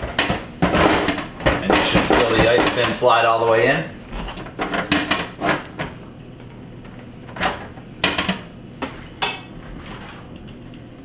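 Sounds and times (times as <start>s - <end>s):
plastic knocks and clatter: 0.0s - 3.0s.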